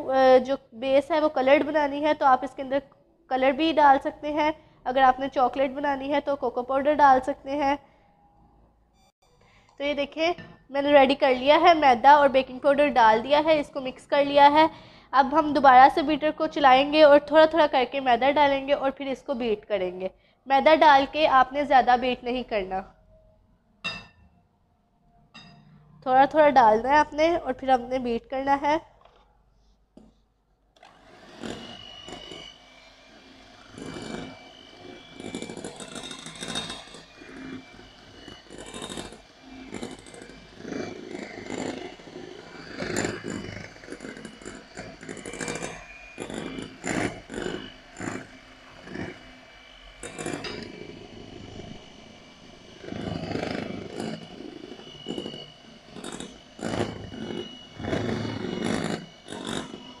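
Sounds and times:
electric hand mixer whining: 30.8s - 60.0s.

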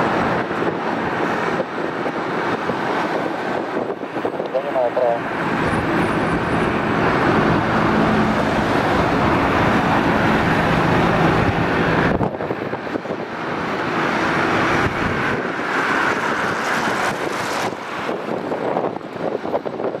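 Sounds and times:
helicopter low drone: 0.0s - 19.7s
city traffic: 0.0s - 20.0s
wind noise: 0.0s - 20.0s.

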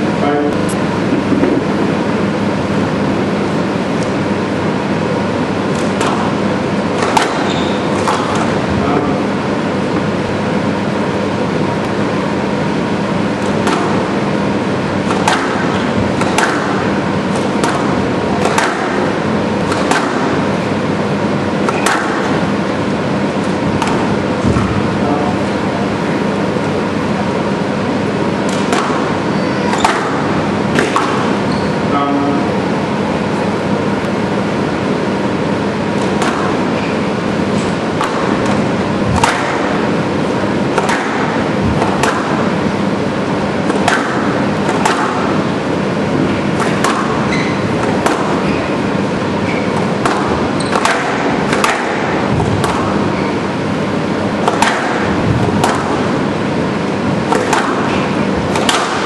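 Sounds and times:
squash ball cracking off rackets: 5.5s - 9.4s, 13.2s - 20.7s, 21.5s - 22.6s, 23.2s - 24.9s, 28.0s - 31.5s, 35.9s - 59.0s.

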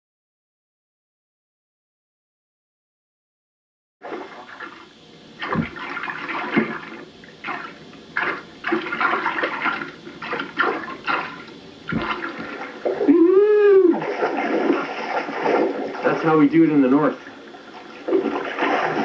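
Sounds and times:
water splashing and sloshing: 4.0s - 19.0s
dull bumps: 5.5s - 5.9s, 10.3s - 13.0s
short voice call: 13.1s - 14.0s.

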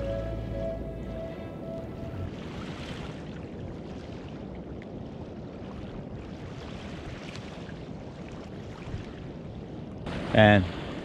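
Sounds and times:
background music: 0.0s - 2.3s
small waves washing on beach: 2.3s - 11.0s.

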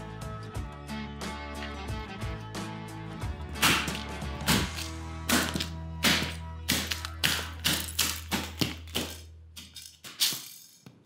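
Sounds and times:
background music: 0.0s - 10.0s
boots stomping on concrete: 3.6s - 9.2s.

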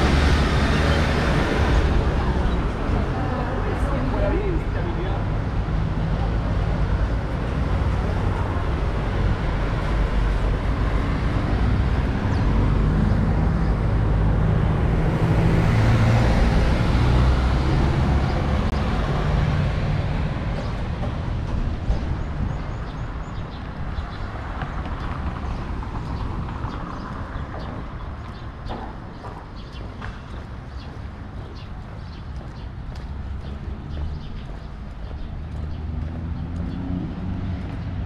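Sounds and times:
vehicle passing: 0.0s - 22.2s, 30.0s - 38.0s
traffic rumble: 0.0s - 38.0s.

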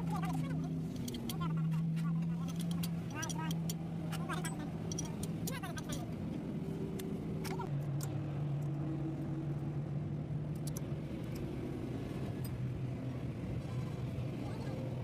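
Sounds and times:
box spanner metallic clicks: 4.8s - 6.0s.

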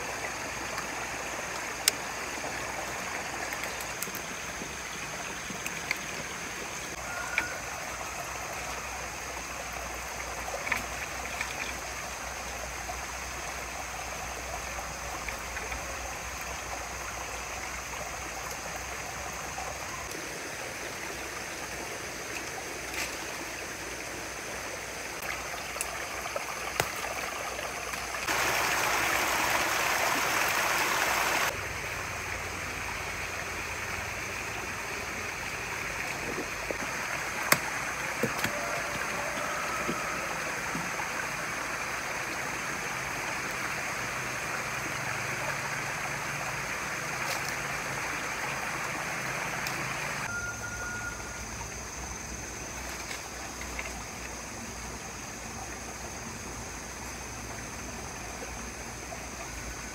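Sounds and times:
running water: 0.0s - 59.9s
loud rush of water: 24.4s - 51.2s.

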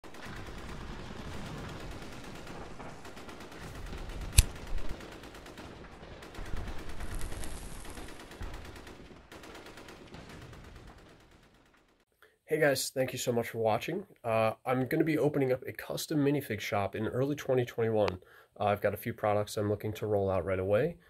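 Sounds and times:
distant gunfire in bursts: 0.0s - 12.0s
sharp click: 4.3s - 4.6s.

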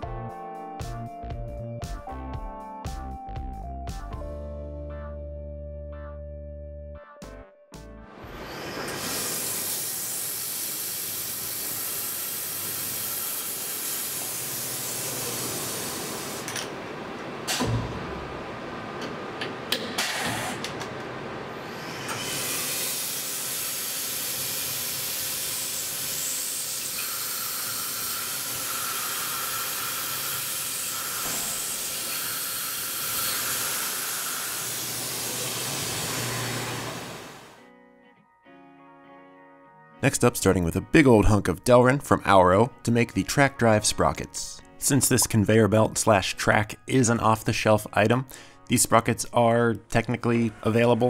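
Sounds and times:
coolant spray hissing: 8.9s - 16.4s, 22.3s - 36.6s
mill drilling: 21.6s - 37.6s.

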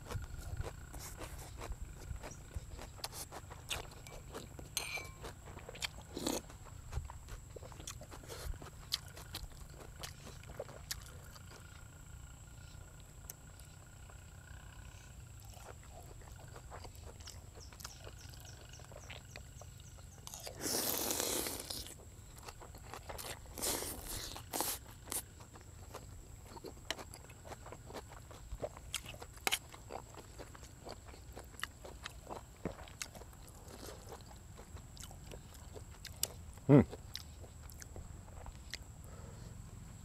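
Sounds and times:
chewing: 0.0s - 39.7s.

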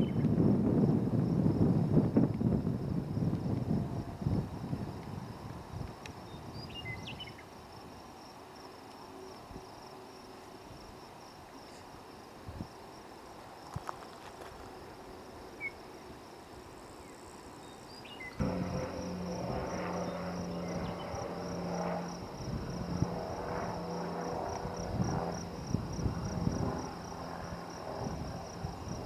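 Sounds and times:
low hum: 18.4s - 28.7s
high-pitched insect drone: 18.4s - 29.0s.

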